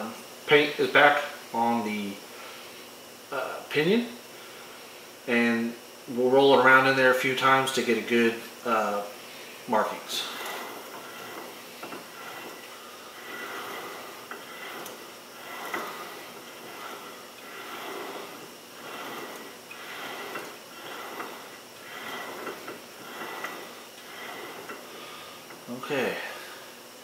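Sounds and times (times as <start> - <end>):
gear teeth meshing rasp: 10.2 - 25.8.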